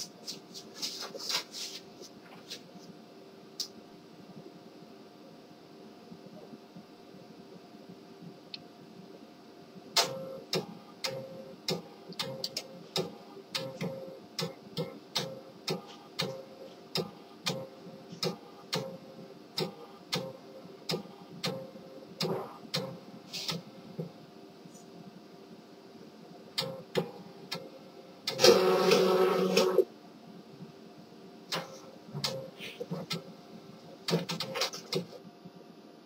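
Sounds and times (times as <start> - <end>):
printer machine hum: 10.0 - 24.2, 26.6 - 29.9.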